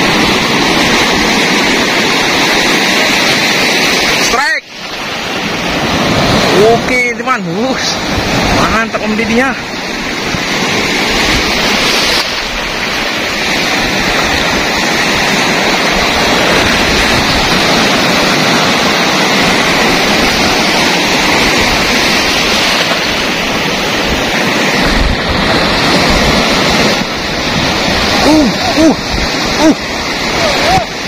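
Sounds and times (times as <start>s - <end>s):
sea waves breaking on rocks: 0.0s - 31.0s.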